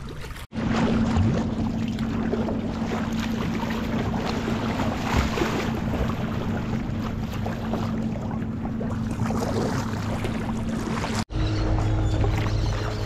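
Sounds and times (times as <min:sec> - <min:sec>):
paddle splashes: 0:00.0 - 0:13.0
water noise: 0:00.0 - 0:13.0
steady low drone: 0:00.6 - 0:13.0.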